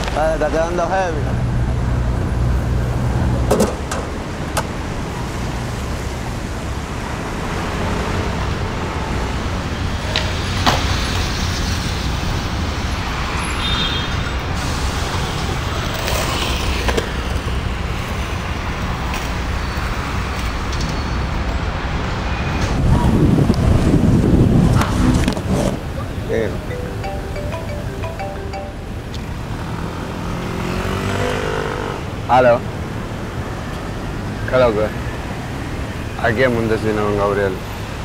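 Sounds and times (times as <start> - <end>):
skateboard wheels rolling on concrete: 14.4 - 22.1.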